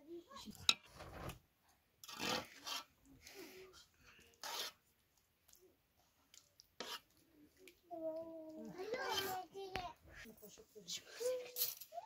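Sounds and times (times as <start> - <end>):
spoon beating wet batter: 2.0 - 9.3.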